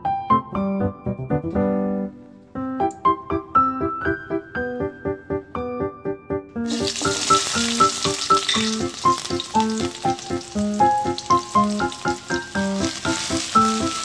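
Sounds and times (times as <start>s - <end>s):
light keyboard music: 0.0s - 14.0s
hot oil sizzling in a wok: 6.6s - 14.0s.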